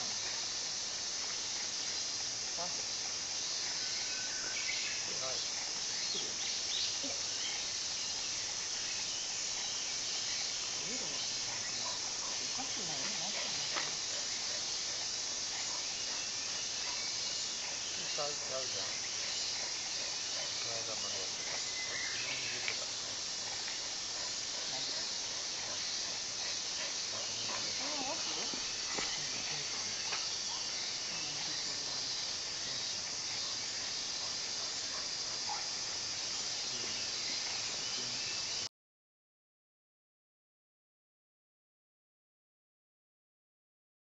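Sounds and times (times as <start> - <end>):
insects chirring: 0.0 - 38.7
outdoor background hiss: 0.0 - 38.7
faint voices talking: 26.8 - 30.2.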